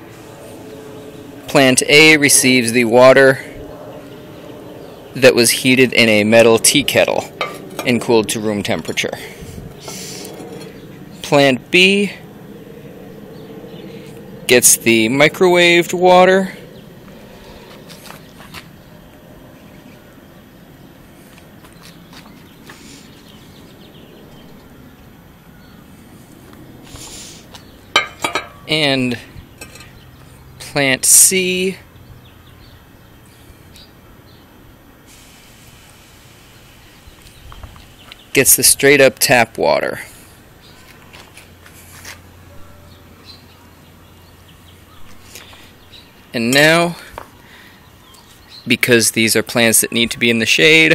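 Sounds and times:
low outdoor rumble: 0.0 - 48.3
steady low hum: 0.0 - 50.9
short hiss: 35.1 - 36.6.

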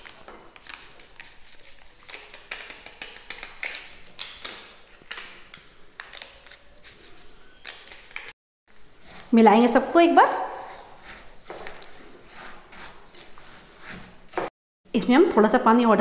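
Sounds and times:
foil sachets crinkling and tapping: 0.0 - 7.0.

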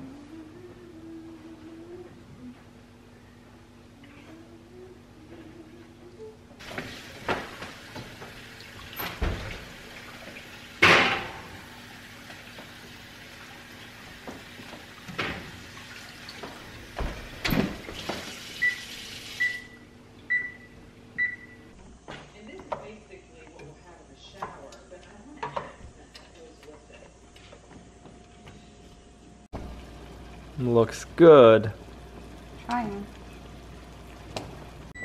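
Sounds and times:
running tap water: 6.6 - 19.7, 29.6 - 35.0
metal clunks of pans and oven door: 9.0 - 9.6, 10.8 - 11.6
oven control panel beeps: 18.6 - 21.6.

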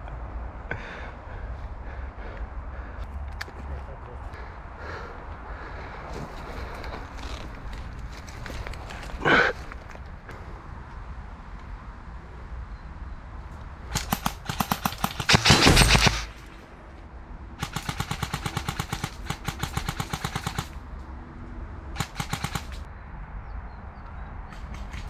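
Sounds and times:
airsoft guns firing bursts: 13.9 - 16.4, 17.6 - 20.8, 22.0 - 22.9.

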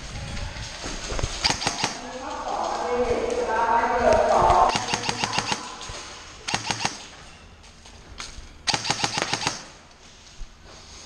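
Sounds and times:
airsoft guns firing: 1.4 - 2.4, 4.7 - 7.2, 8.7 - 9.8.

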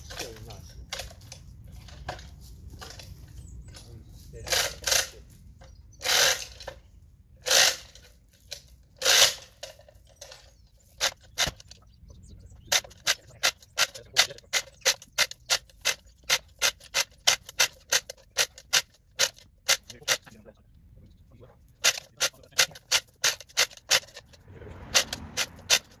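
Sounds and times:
ratchet clicking: 7.4 - 10.4, 12.8 - 20.3, 21.8 - 26.0
chain rattling: 21.8 - 26.0.

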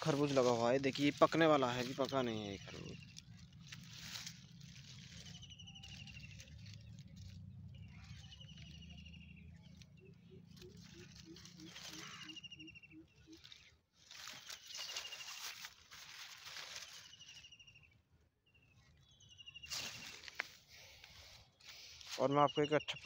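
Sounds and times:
vines and leaves rustling: 0.0 - 17.9, 18.9 - 22.8
low pulsing sound: 2.0 - 13.5.

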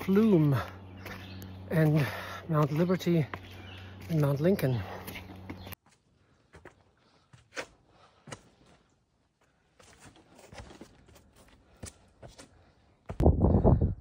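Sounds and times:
faint footsteps on stone: 0.0 - 13.2.

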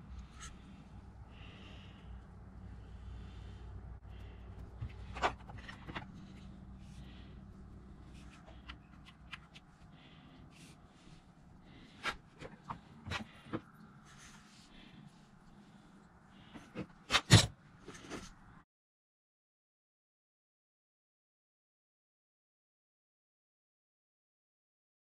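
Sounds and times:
faint low rumble: 0.0 - 16.5.

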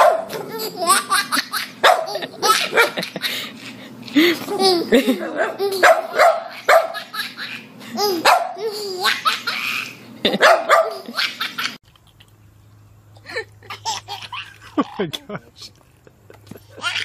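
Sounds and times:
dog barking: 0.0 - 0.5, 1.8 - 3.0, 5.4 - 7.0, 8.2 - 8.6, 10.4 - 11.1
steady low hum: 0.0 - 17.0
baby laughing: 0.3 - 11.8, 13.6 - 15.4, 16.5 - 17.0.

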